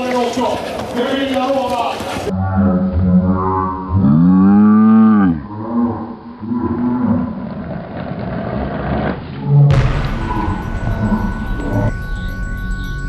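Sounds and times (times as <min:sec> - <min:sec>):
outdoor background noise: 0:00.0 - 0:13.0
cow mooing: 0:02.4 - 0:07.4.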